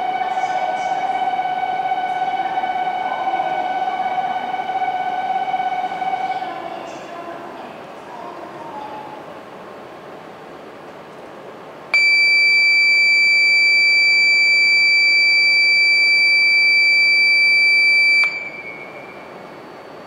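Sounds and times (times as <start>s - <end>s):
high-pitched departure buzzer beep: 12.0s - 19.3s.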